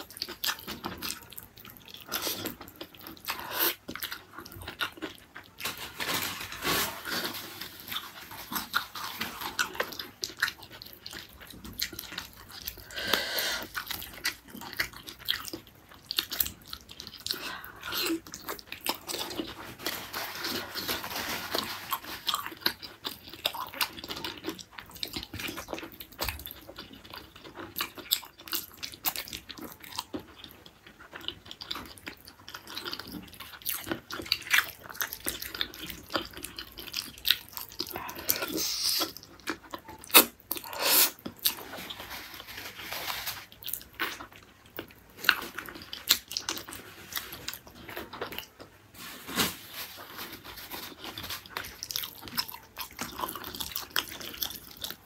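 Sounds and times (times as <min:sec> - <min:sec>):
wet chewing and biting: 0:50.0 - 0:55.0.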